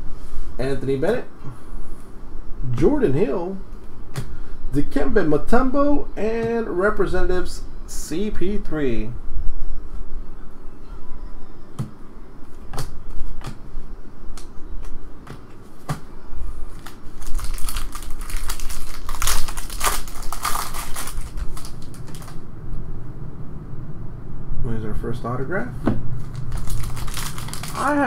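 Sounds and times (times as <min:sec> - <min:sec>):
trading cards clicking and snapping: 0:12.7 - 0:13.6
foil wrapper tearing and crinkling: 0:16.8 - 0:22.4, 0:26.3 - 0:28.0.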